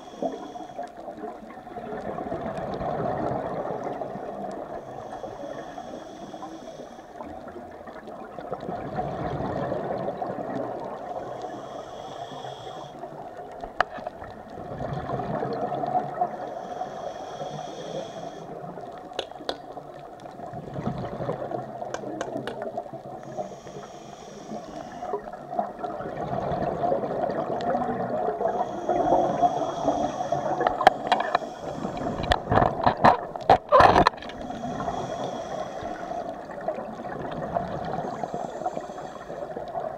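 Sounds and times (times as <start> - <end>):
regulator inhale hiss: 0.0 - 1.2, 3.7 - 7.6, 10.9 - 13.3, 16.1 - 20.0, 23.0 - 25.6, 28.2 - 32.6, 34.3 - 36.7, 37.8 - 39.9
bubbles gurgling underwater: 1.0 - 4.8, 7.2 - 11.1, 13.2 - 16.4, 19.7 - 23.2, 25.1 - 31.2, 31.8 - 38.8
sharp clicks and knocks: 19.1 - 19.7, 21.9 - 22.7.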